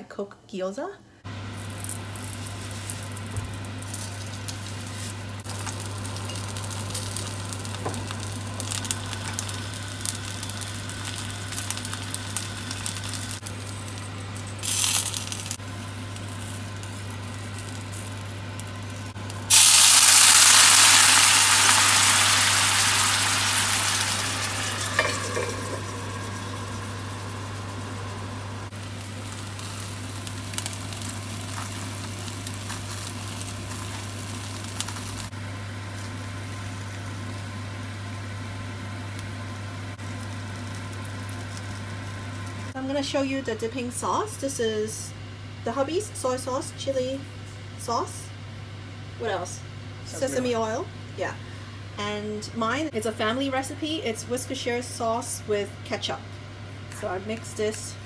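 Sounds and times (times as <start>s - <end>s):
steady low hum: 1.0s - 58.0s
dumplings sizzling in oil: 1.3s - 42.8s
loud hiss of water in oil: 19.5s - 24.0s.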